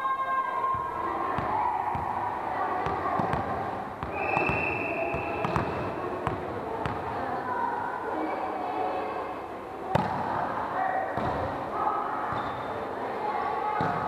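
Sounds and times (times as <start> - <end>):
volleyball bouncing on wooden floor: 2.8 - 7.0
referee's whistle: 4.1 - 5.5.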